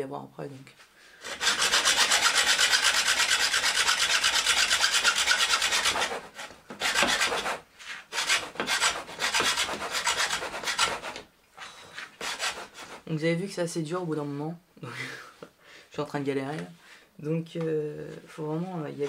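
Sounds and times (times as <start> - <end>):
hacksaw rasping through bamboo: 1.2 - 11.2, 12.2 - 13.0.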